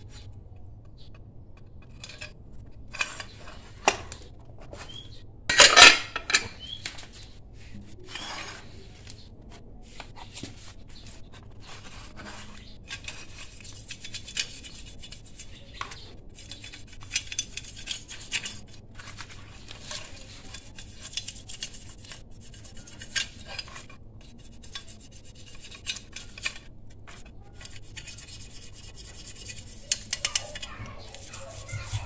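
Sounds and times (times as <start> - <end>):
stiff brush scrubbing metal: 11.5 - 32.0.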